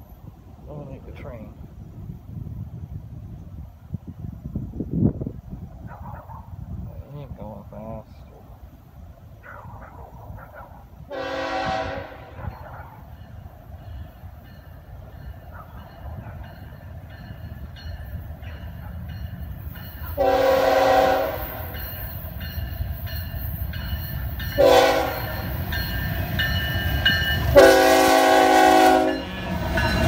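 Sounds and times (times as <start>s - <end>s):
diesel locomotive engine rumble: 0.0s - 30.0s
train air horn blasts: 11.1s - 12.4s, 20.2s - 21.8s, 24.5s - 25.5s, 27.5s - 29.5s
crossing bell ringing: 12.5s - 30.0s.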